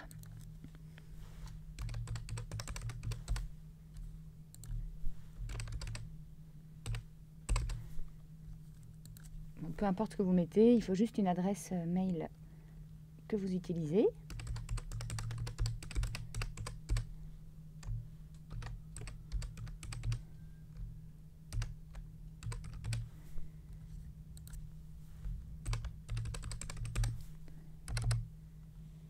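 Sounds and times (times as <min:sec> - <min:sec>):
faint low hum: 0:00.0 - 0:29.0
keyboard typing: 0:01.8 - 0:03.4, 0:04.5 - 0:04.8, 0:05.4 - 0:06.1, 0:06.8 - 0:07.8, 0:09.0 - 0:09.3, 0:14.3 - 0:17.1, 0:17.8 - 0:20.9, 0:21.5 - 0:23.1, 0:24.4 - 0:24.6, 0:25.6 - 0:27.2, 0:27.9 - 0:28.2.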